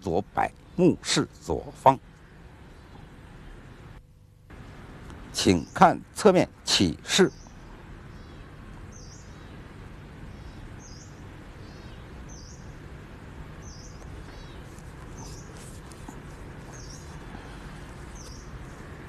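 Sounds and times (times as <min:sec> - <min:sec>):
low background noise: 0:00.0 - 0:19.0
bird chirping: 0:07.1 - 0:12.9, 0:13.5 - 0:19.0.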